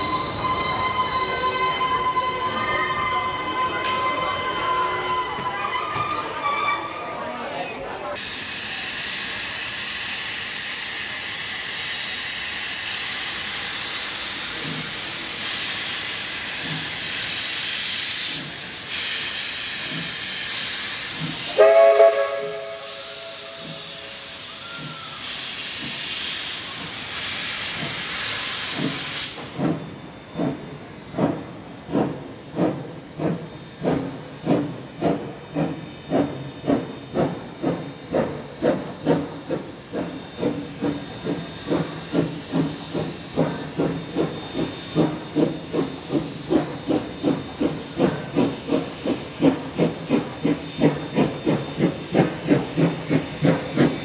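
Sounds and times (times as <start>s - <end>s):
steam whistle blast: 0.0s - 7.0s, 21.5s - 25.9s
steam hissing: 0.0s - 54.0s
steam locomotive exhaust chuffs: 8.2s - 54.0s.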